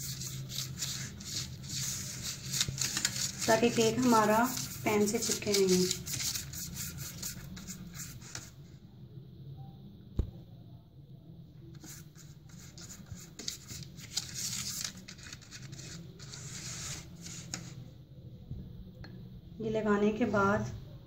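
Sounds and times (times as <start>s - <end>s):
pastry brush scratchy strokes: 0.0s - 8.6s, 11.8s - 17.8s.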